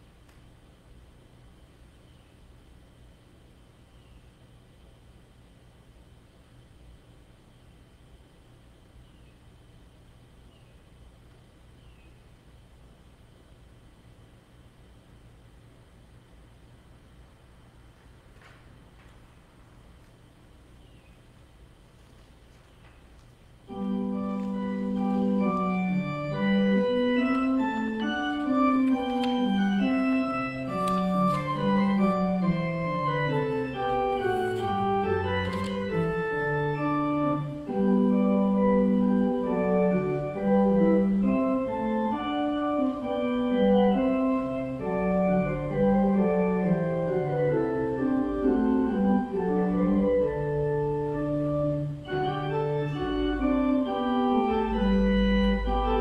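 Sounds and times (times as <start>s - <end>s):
organ music: 22.9s - 56.0s.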